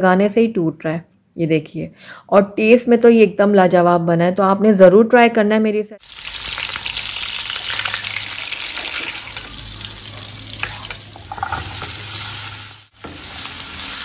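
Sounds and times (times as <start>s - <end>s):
steaks sizzling in frying pan: 6.0s - 14.0s
vegetables sizzling stirred with spatula: 8.5s - 14.0s.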